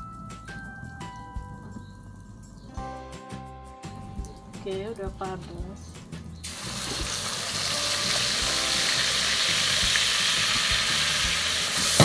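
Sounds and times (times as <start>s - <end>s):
paste sizzling in hot oil: 6.4s - 12.0s.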